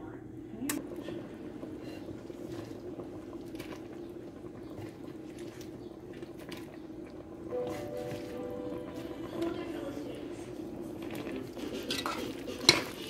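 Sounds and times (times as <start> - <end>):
steady low hum: 0.0 - 13.0
wet squelching of stirred sauce: 1.7 - 9.1.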